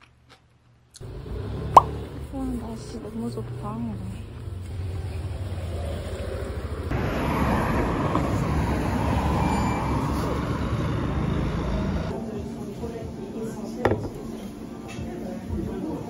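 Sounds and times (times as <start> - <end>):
road traffic rumble: 1.0 - 12.3
car passing close: 4.4 - 12.1.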